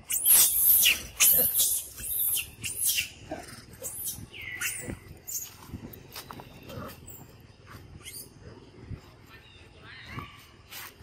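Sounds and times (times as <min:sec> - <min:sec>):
monkeys squealing: 0:00.1 - 0:05.5.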